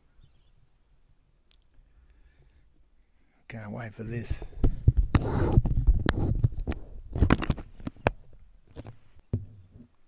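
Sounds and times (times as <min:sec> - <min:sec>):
camera handling rustling: 0:05.1 - 0:09.0.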